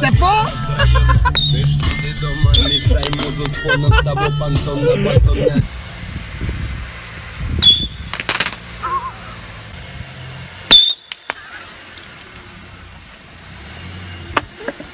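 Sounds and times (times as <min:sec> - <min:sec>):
firecracker bangs: 0:07.6 - 0:08.8
small firecracker cracks: 0:08.1 - 0:08.7, 0:10.7 - 0:12.5.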